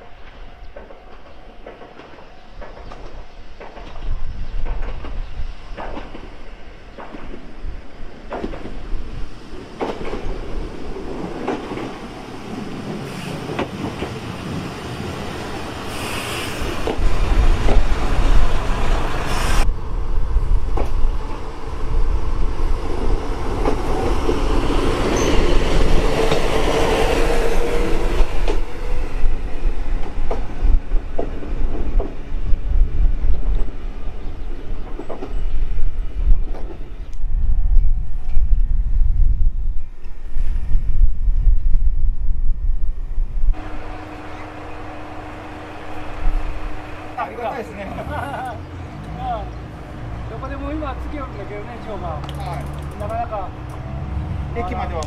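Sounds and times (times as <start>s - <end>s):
diesel railcar running: 0.0s - 38.8s, 43.4s - 55.0s
wheels clicking over rail joints: 9.6s - 19.1s, 22.8s - 26.9s, 50.2s - 53.9s.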